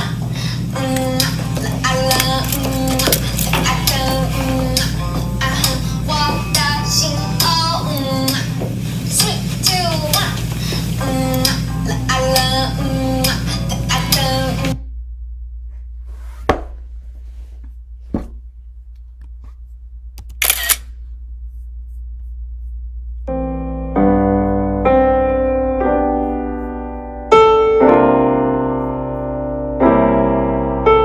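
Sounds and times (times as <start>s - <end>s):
jazz piano chords: 0.0s - 14.8s, 23.2s - 31.0s
steady low hum: 0.0s - 27.6s
sharp clicks: 20.2s - 20.9s.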